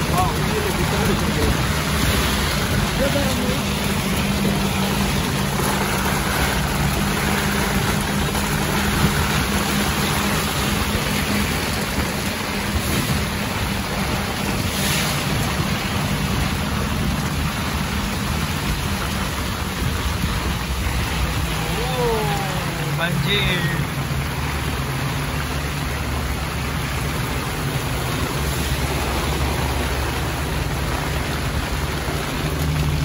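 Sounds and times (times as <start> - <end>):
rush of wind and rain: 0.0 - 33.0
truck engine hum: 0.0 - 33.0.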